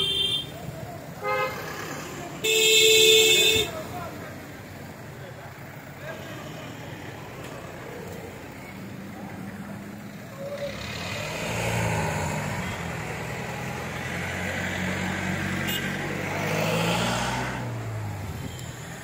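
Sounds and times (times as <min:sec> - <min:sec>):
passing traffic engines: 0:00.0 - 0:19.0.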